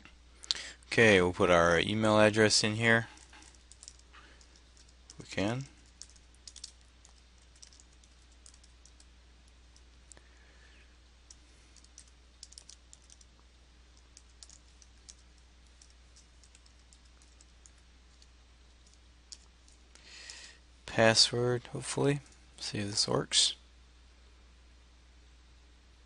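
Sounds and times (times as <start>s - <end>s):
low steady hum: 0.0s - 26.0s
faint keyboard typing: 2.8s - 10.2s, 11.2s - 20.6s.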